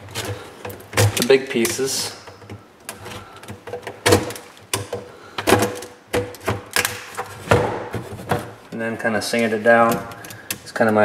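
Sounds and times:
hard plastic cracking and snapping: 0.1s - 8.8s.

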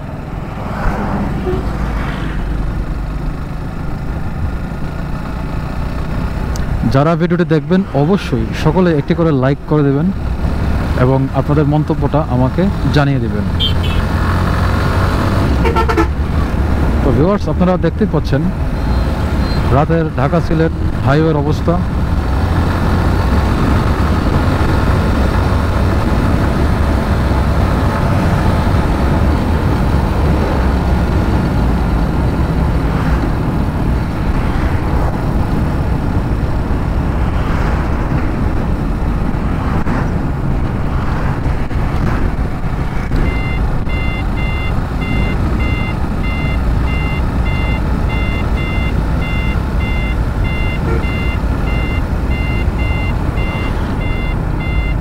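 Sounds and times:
motorcycle engine and road noise: 0.0s - 55.0s
vehicles passing: 0.0s - 55.0s
electronic beeping: 43.2s - 55.0s.

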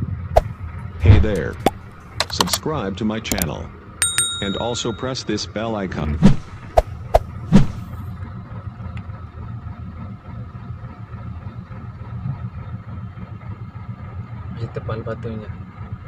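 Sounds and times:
truck engine idling: 6.9s - 14.6s.

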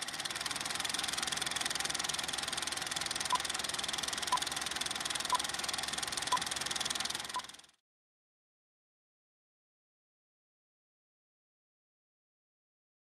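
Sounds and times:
film projector clattering: 0.0s - 7.7s.

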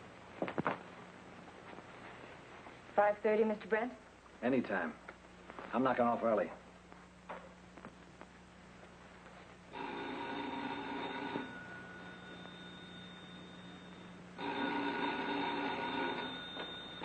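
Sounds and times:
telephone bell ringing: 9.7s - 17.0s.

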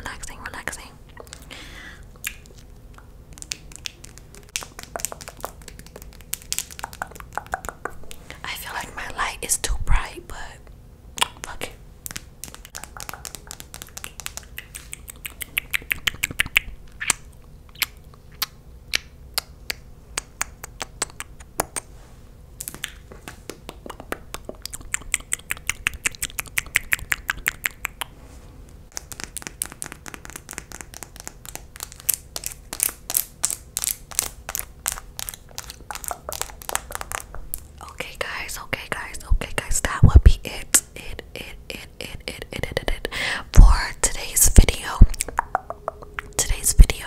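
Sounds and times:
wet lip clicks and smacks: 2.1s - 8.2s, 11.2s - 21.9s, 22.6s - 28.1s, 28.9s - 38.4s, 44.8s - 47.0s.

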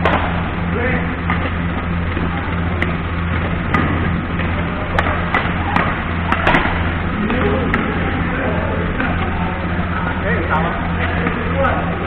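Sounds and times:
rackets hitting shuttlecock: 0.0s - 9.4s
steady hall hum: 0.0s - 12.0s.

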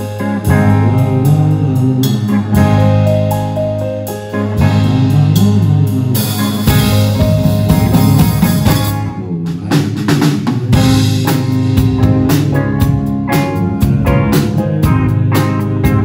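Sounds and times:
drums steady beat: 0.0s - 16.0s
live rock band playing: 0.0s - 16.0s.

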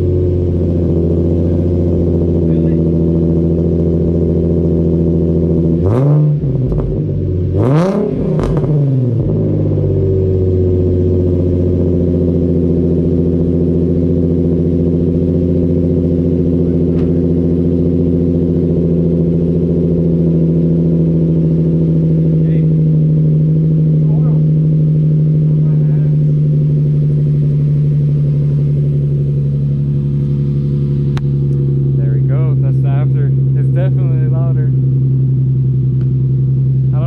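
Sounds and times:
car engine idling: 0.0s - 37.0s
engine revving: 0.0s - 37.0s
exhaust crackle: 0.0s - 37.0s.

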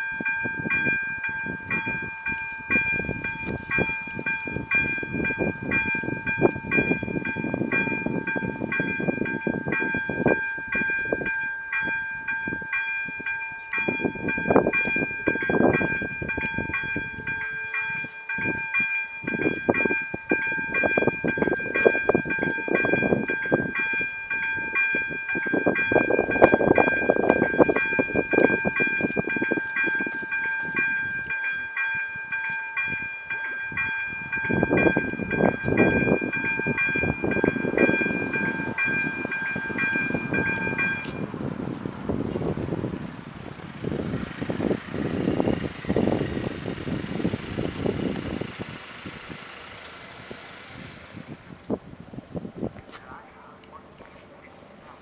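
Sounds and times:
electronic level crossing bell: 0.0s - 41.4s.

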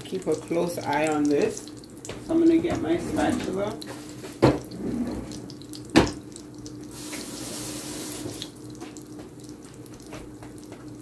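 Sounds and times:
bread sizzling in a pan: 3.4s - 4.8s, 5.5s - 11.0s.

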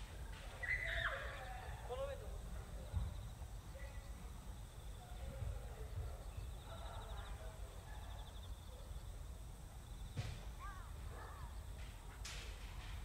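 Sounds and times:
faint distant voices: 0.0s - 13.0s.

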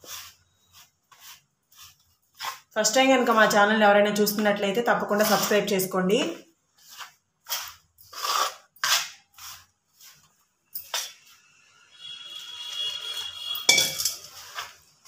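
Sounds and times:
ladle scraping metal bowl: 5.1s - 5.8s, 12.8s - 14.8s.

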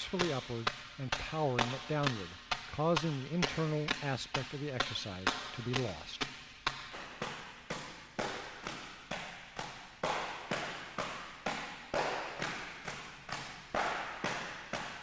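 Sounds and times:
open hands slapping training bag: 4.8s - 15.0s.

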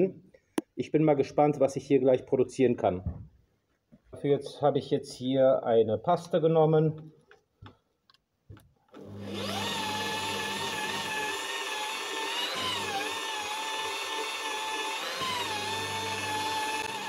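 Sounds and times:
polishing machine whine: 9.0s - 17.0s.

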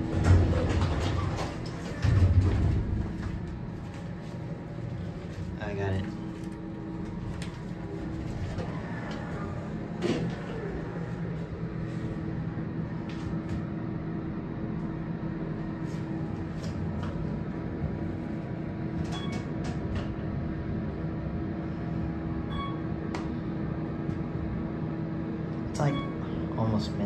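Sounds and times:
elevator door shutting knock: 0.0s - 3.7s
elevator low hum: 0.0s - 27.0s
elevator chime: 19.1s - 19.5s, 22.5s - 22.9s, 25.8s - 26.3s.

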